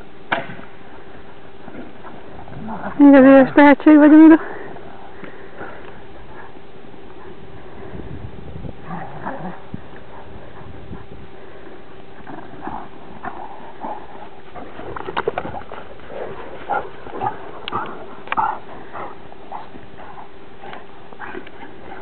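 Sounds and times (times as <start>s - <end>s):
dogs growling and snorting: 1.6s - 3.5s, 8.6s - 22.0s.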